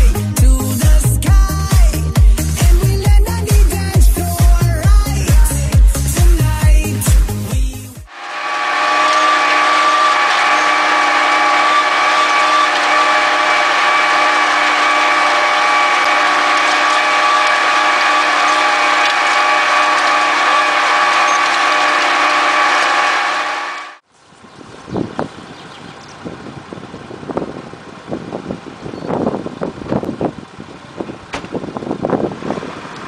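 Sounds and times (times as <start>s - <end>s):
tractor engine drone with whine: 8.1s - 33.0s.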